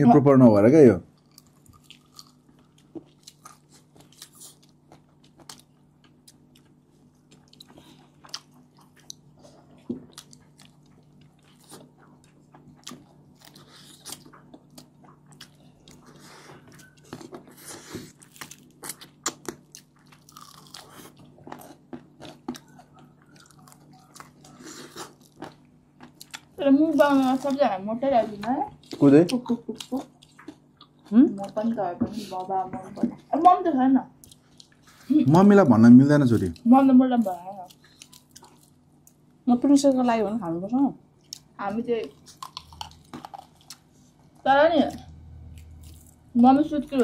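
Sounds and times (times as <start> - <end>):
faint steady hum: 0.0 - 47.0
people chewing crispy chicken: 1.1 - 27.8, 28.4 - 32.5, 34.2 - 36.7, 37.3 - 39.4, 41.2 - 46.3.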